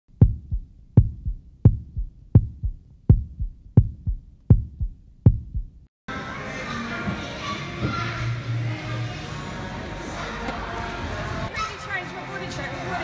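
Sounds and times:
heartbeat double thump: 0.1 - 5.9.

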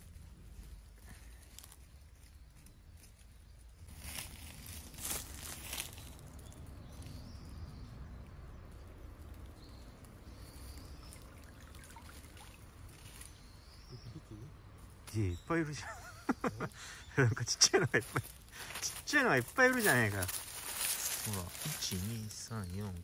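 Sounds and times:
rope rustling and scraping: 18.1 - 22.4.

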